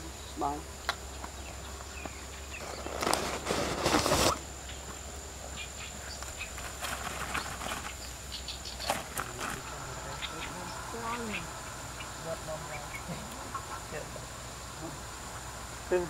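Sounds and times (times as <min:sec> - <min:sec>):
high-pitched insect buzz: 0:00.0 - 0:16.0
footsteps on dirt: 0:01.2 - 0:05.0, 0:06.1 - 0:10.6
scuffing rustle: 0:01.8 - 0:04.4, 0:06.1 - 0:08.2.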